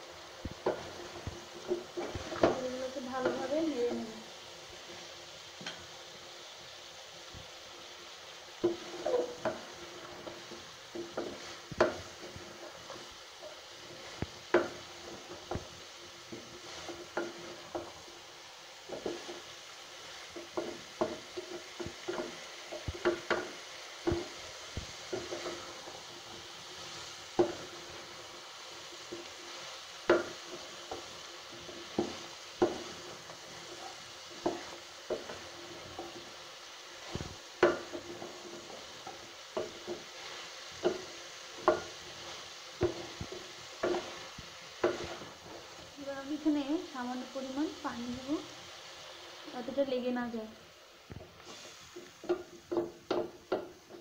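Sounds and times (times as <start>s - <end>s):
faint oil sizzle: 0.0s - 54.0s
spatula knocking and scraping pot: 0.4s - 4.3s, 8.6s - 18.1s, 18.9s - 19.6s, 20.2s - 28.2s, 29.0s - 45.8s, 51.1s - 54.0s.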